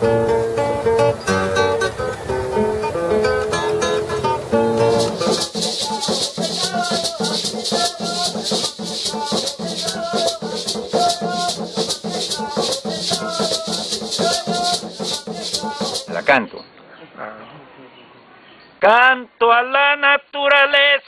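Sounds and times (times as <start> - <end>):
hand drums: 3.5 - 16.4
maracas shaken in rhythm: 4.4 - 16.4.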